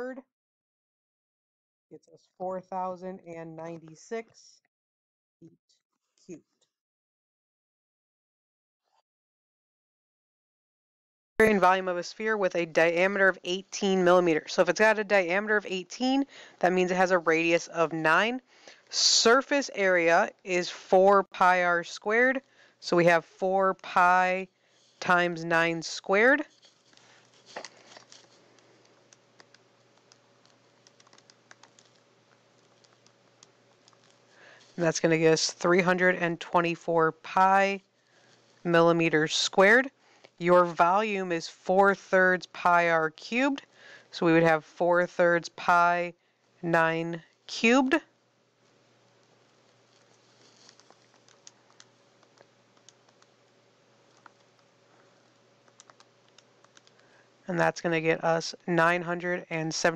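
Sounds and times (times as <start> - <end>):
faint steady hum: 11.4 - 59.9
faint irregular clicks and taps: 26.4 - 34.8, 49.1 - 57.2.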